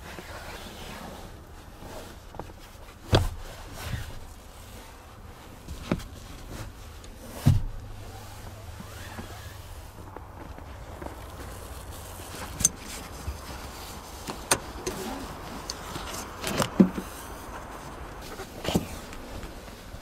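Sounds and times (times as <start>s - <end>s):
car seat thumps and clunks: 2.4s - 4.3s, 5.7s - 8.0s, 15.9s - 17.1s, 18.2s - 19.6s.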